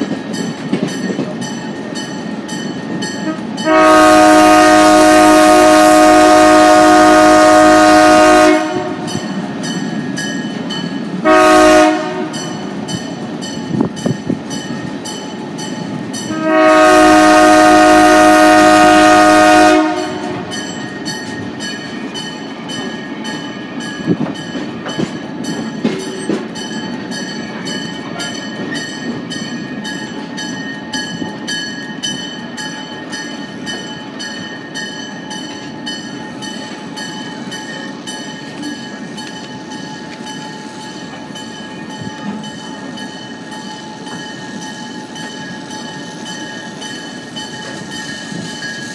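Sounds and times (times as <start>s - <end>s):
locomotive horn blast: 3.2s - 9.1s, 11.2s - 12.6s, 16.3s - 20.6s.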